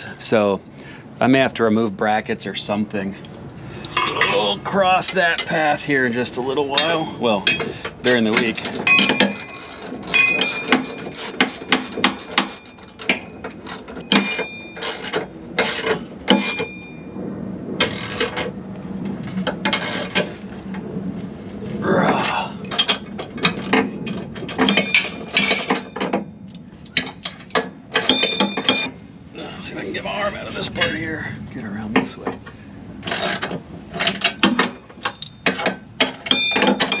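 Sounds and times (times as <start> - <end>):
metal hardware clicks and clinks: 6.5 - 17.0, 22.6 - 29.0, 33.0 - 37.0.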